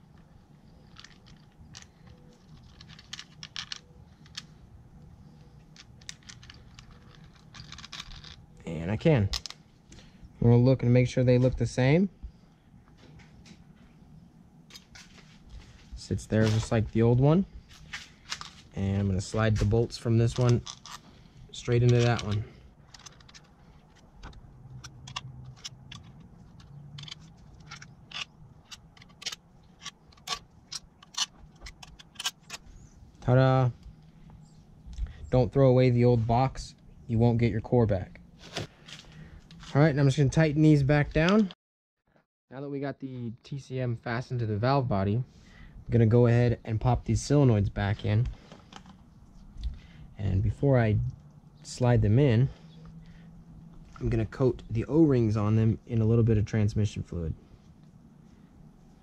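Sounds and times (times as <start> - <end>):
metal bolts clicking and tapping: 21.8 - 32.7.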